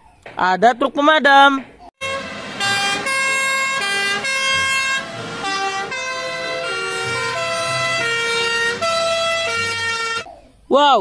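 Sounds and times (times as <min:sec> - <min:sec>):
two-tone fire truck sirens: 0:02.0 - 0:10.3.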